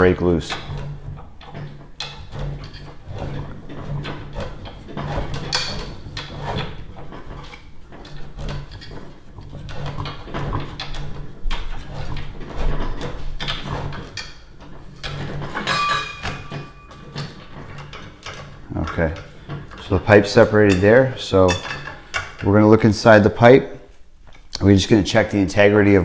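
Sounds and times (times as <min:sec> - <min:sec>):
pipe cutter rasping on copper: 0:00.0 - 0:23.6
metallic ring of pipe: 0:15.6 - 0:17.4.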